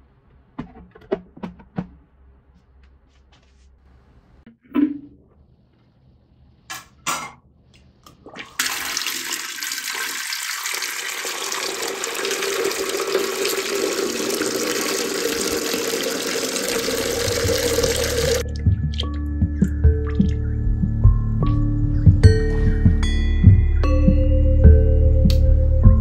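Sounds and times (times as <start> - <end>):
water pouring into plastic tank: 8.2 - 19.2.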